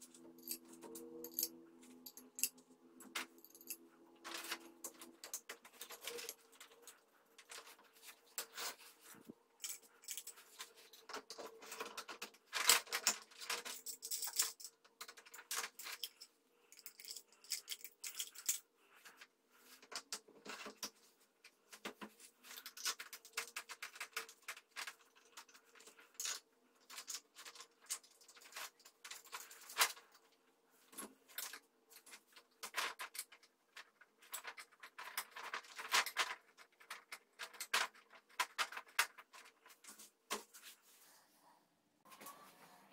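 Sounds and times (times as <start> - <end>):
metal parts clicking and scraping: 0.0 - 9.0, 9.6 - 19.2.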